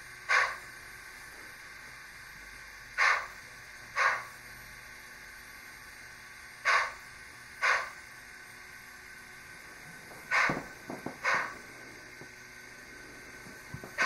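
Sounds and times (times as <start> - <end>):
model train hissing bursts: 0.0 - 14.0.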